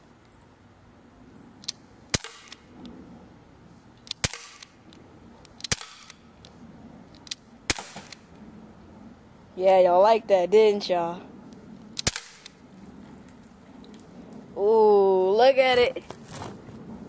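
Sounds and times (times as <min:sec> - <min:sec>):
air pistol shots: 0:02.1 - 0:02.6, 0:04.1 - 0:04.8, 0:05.6 - 0:06.2, 0:07.7 - 0:08.2, 0:12.0 - 0:12.6.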